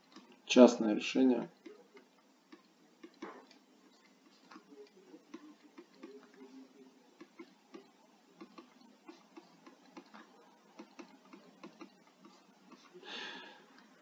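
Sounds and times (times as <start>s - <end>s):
stylus tapping on pen tablet: 7.2s - 12.9s.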